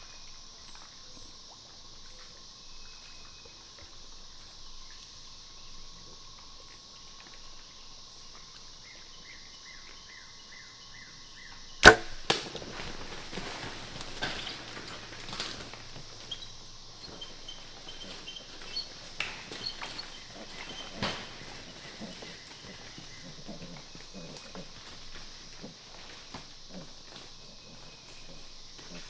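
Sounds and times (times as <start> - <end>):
steady high hiss: 11.6 - 23.0
bow shot crack: 11.8 - 12.8
hogs scrambling through brush: 11.8 - 29.0.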